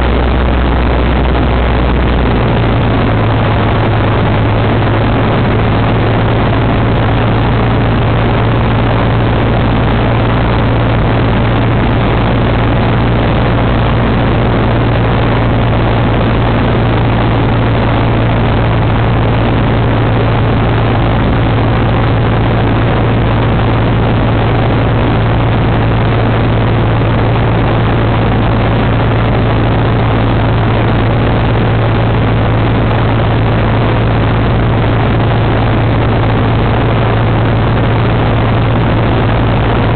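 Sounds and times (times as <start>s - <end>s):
aircraft engine droning in cabin: 0.0s - 39.9s
wind rushing: 0.0s - 39.9s.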